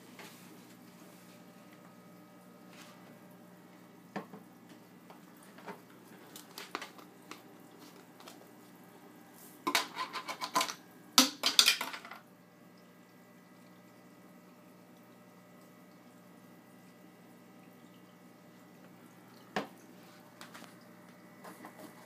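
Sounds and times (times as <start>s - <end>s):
fish food rattling: 5.4s - 8.4s.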